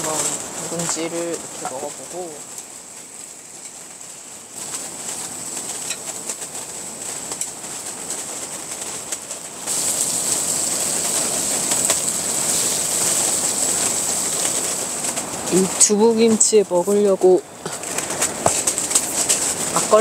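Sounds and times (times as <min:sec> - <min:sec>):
gusty wind against tent: 0:00.0 - 0:20.0.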